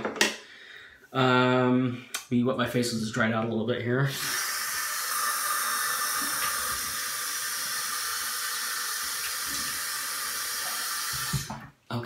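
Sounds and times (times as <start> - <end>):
tap running into sink: 10.6 - 11.7.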